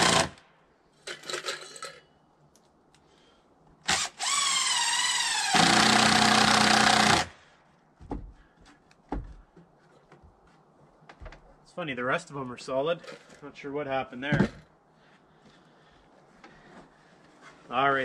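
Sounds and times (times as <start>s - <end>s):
cordless drill driving screws: 0.0s - 0.4s, 3.9s - 7.3s.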